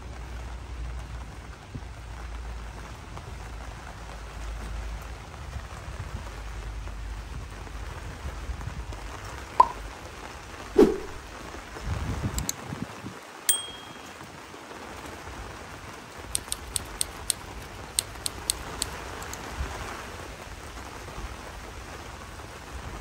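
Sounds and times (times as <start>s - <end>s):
metallic clink: 13.5s - 14.1s
oil popping and spitting: 16.3s - 19.4s.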